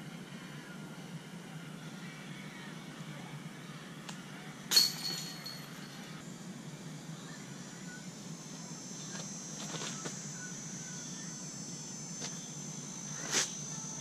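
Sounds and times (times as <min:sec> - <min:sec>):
insects droning high-pitched: 0:04.7 - 0:14.0.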